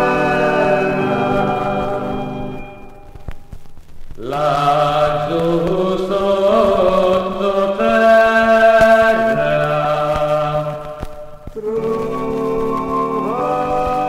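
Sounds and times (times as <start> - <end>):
vocal group singing: 0.0 - 3.0, 4.2 - 14.0
held chord: 0.0 - 3.4.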